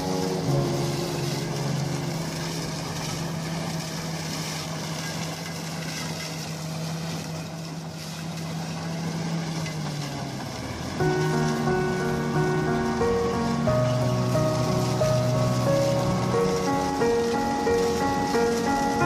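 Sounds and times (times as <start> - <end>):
low steady hum: 0.0 - 9.6
tractor and harvester running: 0.0 - 19.0.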